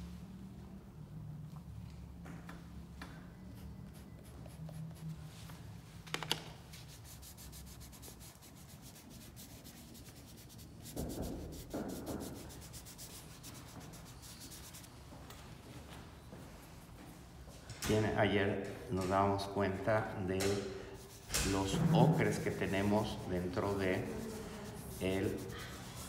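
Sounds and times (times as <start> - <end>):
pastel scratching on paper: 6.7 - 15.0, 21.0 - 26.0.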